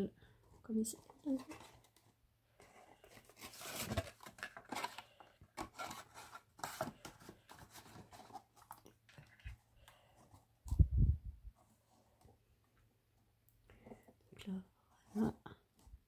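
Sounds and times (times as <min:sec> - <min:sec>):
card and paper rustling: 0:00.3 - 0:10.8.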